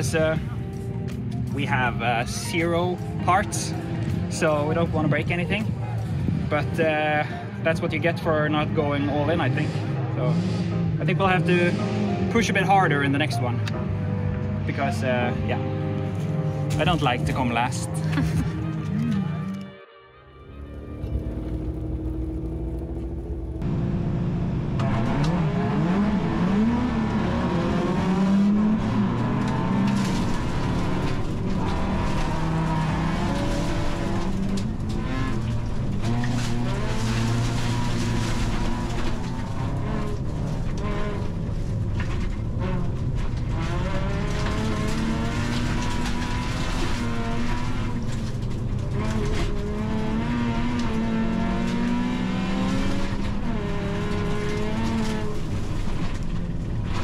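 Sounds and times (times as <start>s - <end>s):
race car engine revving: 0.0s - 13.5s, 20.5s - 57.0s
tyre and gravel noise: 20.6s - 23.6s, 28.2s - 57.0s.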